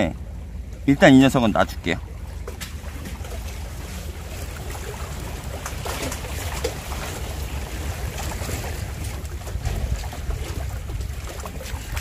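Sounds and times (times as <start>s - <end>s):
waves lapping against rocks: 0.0s - 12.0s
wind buffeting microphone: 1.8s - 12.0s.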